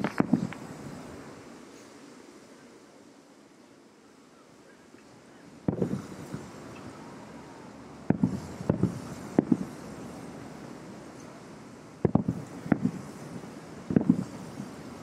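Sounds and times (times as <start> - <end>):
distant firework booms: 0.0 - 0.6, 5.7 - 6.5, 8.0 - 9.8, 12.0 - 14.8
steady hiss of air: 0.0 - 15.0.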